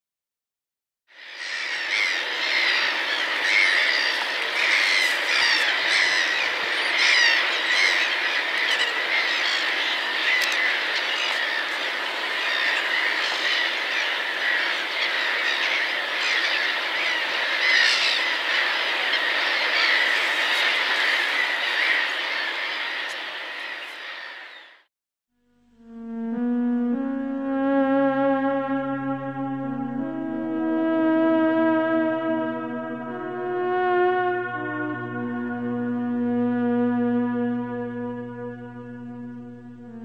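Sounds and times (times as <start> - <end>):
flock of birds calling: 1.2 - 24.8.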